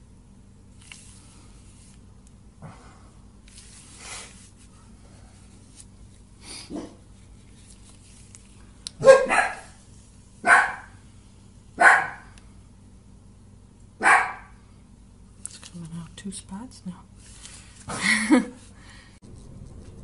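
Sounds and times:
dog barking: 6.7s - 7.0s, 9.0s - 9.8s, 10.4s - 11.0s, 11.8s - 12.3s, 14.0s - 14.6s.

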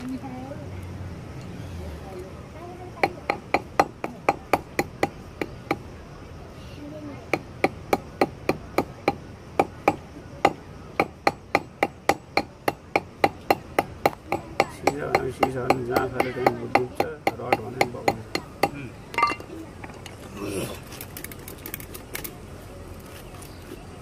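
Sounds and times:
hammer tapping lead sinker on stone: 7.3s - 19.4s.

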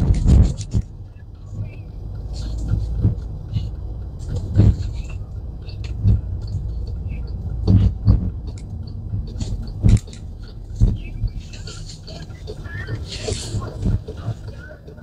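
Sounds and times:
road rumble inside car: 0.0s - 15.0s.

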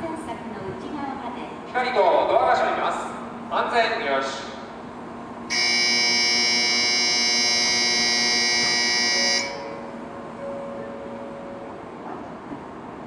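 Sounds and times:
electronic departure bell ringing: 5.5s - 11.9s.

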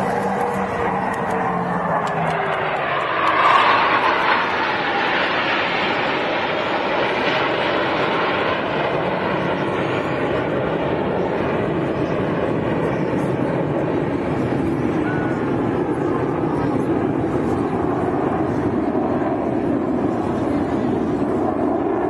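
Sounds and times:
jet engine noise: 0.0s - 22.0s.

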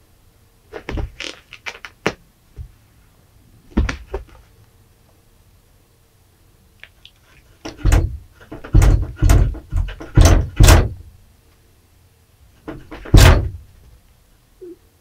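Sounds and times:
door rattling and banging: 7.6s - 11.0s, 12.6s - 13.6s.

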